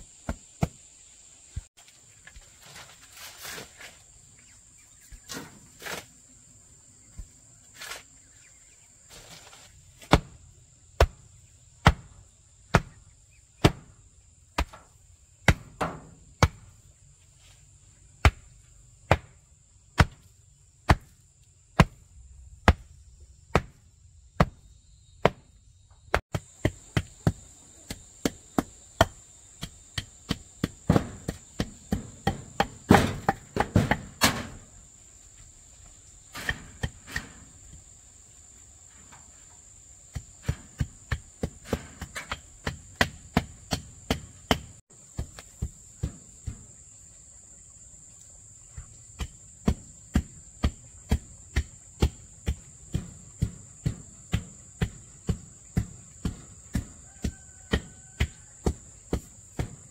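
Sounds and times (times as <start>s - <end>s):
crickets chirping: 0.0s - 59.9s
hand tool striking wood: 13.6s - 14.0s, 14.6s - 16.7s, 19.1s - 19.4s, 20.9s - 21.2s, 23.5s - 23.8s, 24.4s - 24.6s, 25.2s - 25.5s, 26.1s - 34.6s, 36.3s - 37.4s, 40.1s - 46.8s, 49.2s - 59.9s.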